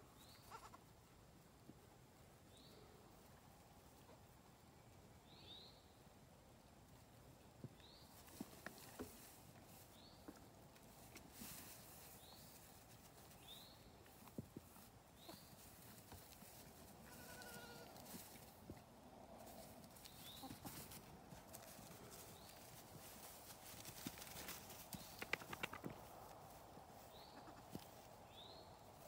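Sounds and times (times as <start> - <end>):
young goat bleating: 0.4 - 0.8, 17.0 - 18.1.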